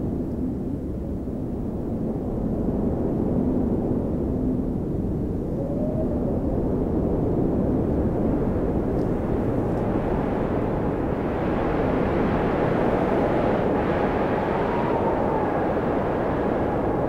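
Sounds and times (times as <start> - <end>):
wind blowing in snowstorm: 0.0 - 17.0.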